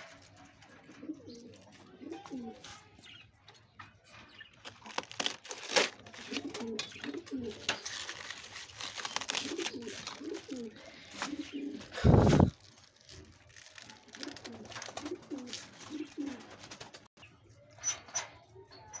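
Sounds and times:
pigeons cooing: 0:00.1 - 0:03.2, 0:06.1 - 0:08.3, 0:08.9 - 0:17.0
cabbage leaves tearing: 0:04.6 - 0:16.4.

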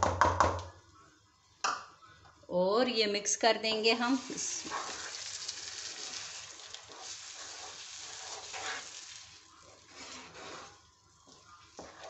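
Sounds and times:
soft sizzle: 0:00.8 - 0:12.0
wooden spoon scraping frying pan: 0:04.2 - 0:12.0.

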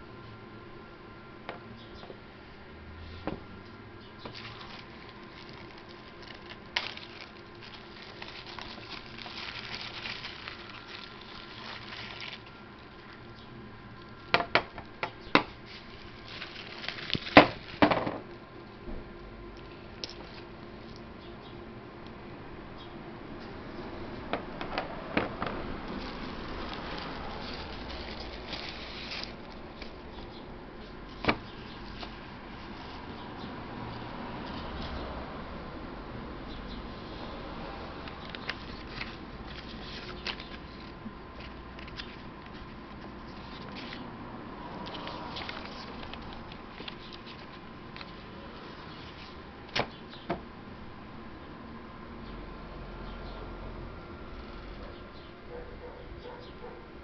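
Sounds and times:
rustling: 0:04.2 - 0:14.4, 0:15.4 - 0:18.0, 0:25.2 - 0:33.3, 0:38.2 - 0:50.0
plastic bag crinkling: 0:04.2 - 0:18.1, 0:25.2 - 0:30.4, 0:38.2 - 0:44.0, 0:44.8 - 0:49.4.

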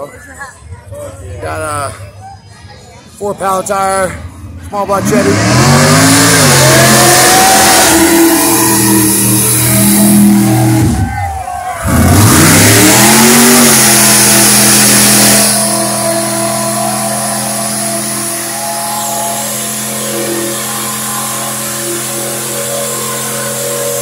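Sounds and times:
loud rushing noise: 0:04.3 - 0:24.0
engine revving at full throttle: 0:04.8 - 0:11.2, 0:11.8 - 0:24.0.

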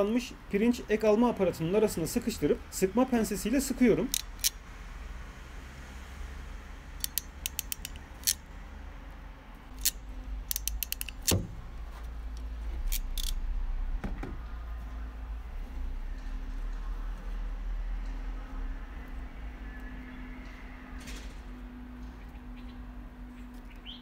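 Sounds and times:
crimping pliers clicking: 0:04.0 - 0:04.6, 0:07.0 - 0:08.4, 0:09.7 - 0:11.5, 0:12.9 - 0:13.4.

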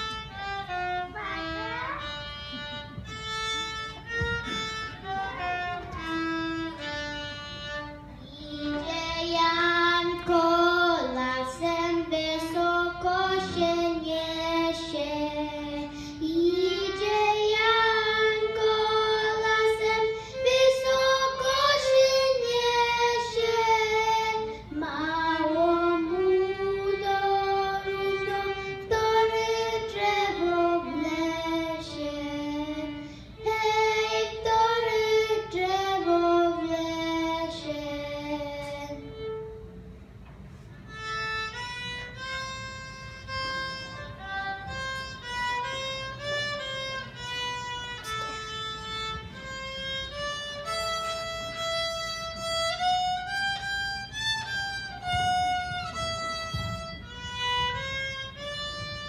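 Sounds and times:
girl singing: 0:00.0 - 0:02.9, 0:07.8 - 0:39.4
violin notes: 0:00.0 - 0:59.0.

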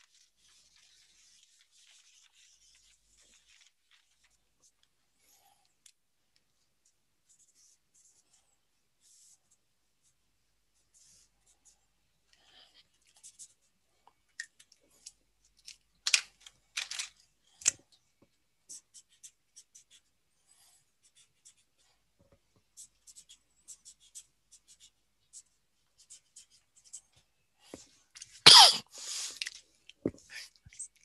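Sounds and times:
marker scratching on paper: 0:00.0 - 0:04.4, 0:10.8 - 0:11.8, 0:18.7 - 0:21.8, 0:22.7 - 0:27.8.

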